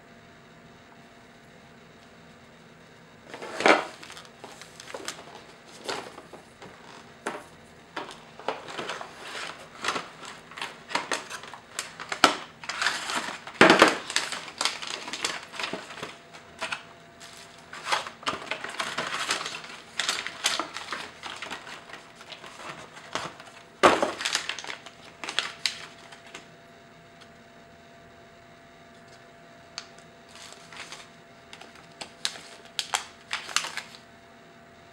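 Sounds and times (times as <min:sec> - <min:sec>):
plastic wrapping crinkling: 0:03.3 - 0:26.5, 0:29.8 - 0:34.0.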